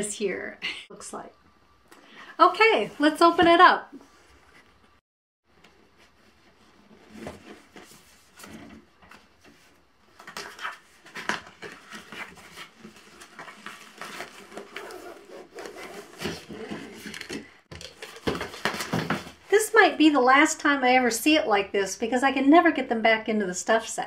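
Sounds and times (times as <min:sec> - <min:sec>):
cardboard box rustling and scraping: 0:06.0 - 0:17.4.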